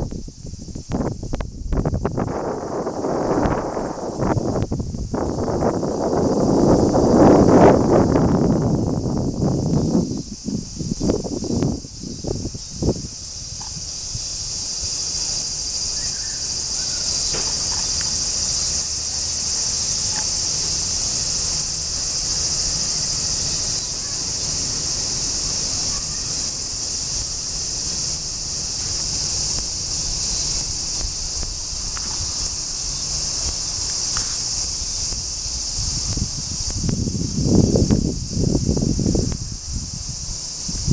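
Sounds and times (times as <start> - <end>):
cicadas shrilling: 0.0 - 40.9.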